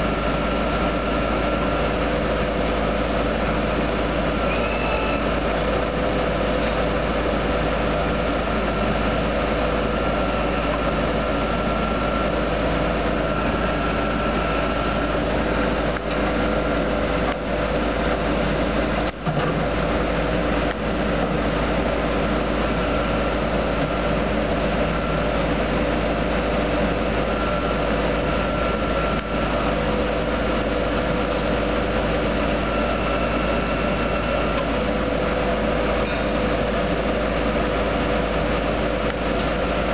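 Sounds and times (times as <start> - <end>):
drill rig engines droning: 0.0 - 39.9
high held tone: 4.4 - 5.4.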